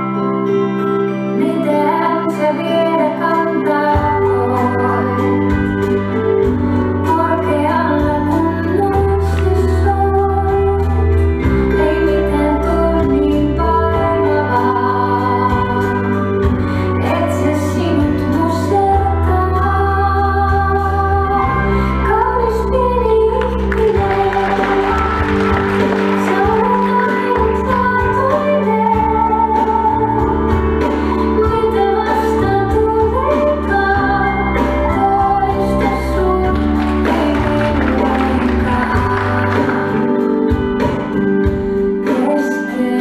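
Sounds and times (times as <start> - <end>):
woman singing with vibrato: 1.4 - 6.1, 7.0 - 16.2, 16.8 - 40.5, 42.0 - 43.0
organ-like keyboard chords: 21.1 - 43.0.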